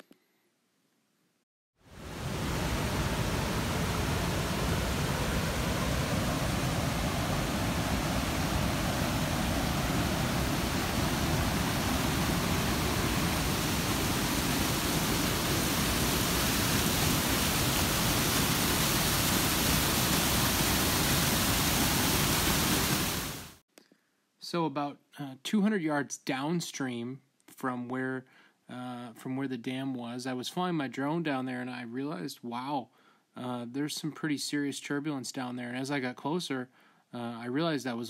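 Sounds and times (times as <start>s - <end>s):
waterfalls rushing: 1.9s - 23.6s.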